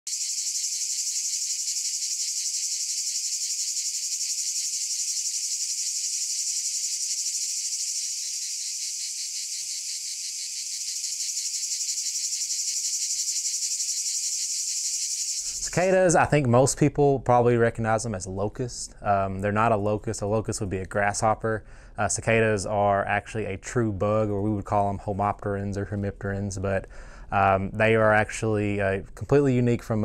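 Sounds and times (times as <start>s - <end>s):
cicadas buzzing: 0.1s - 16.1s.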